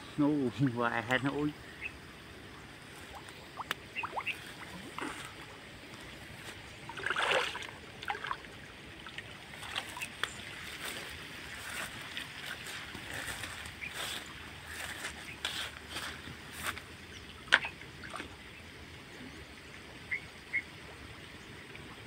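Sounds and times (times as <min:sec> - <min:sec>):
water splashing and sloshing: 0:02.2 - 0:18.6.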